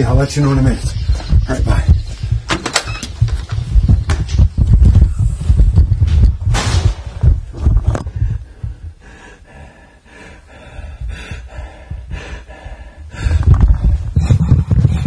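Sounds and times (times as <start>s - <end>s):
loud low rumbling: 3.1s - 9.1s
man breathing hard and gasping: 7.9s - 15.0s.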